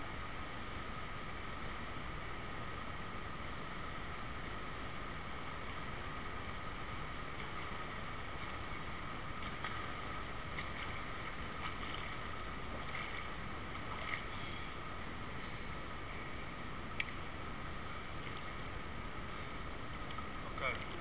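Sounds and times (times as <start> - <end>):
indoor pool noise: 0.0 - 21.0
swimmer splashing: 7.1 - 15.9.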